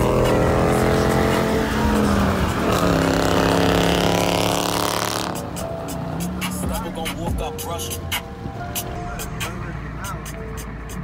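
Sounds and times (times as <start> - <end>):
car engine revving hard: 0.0 - 7.4.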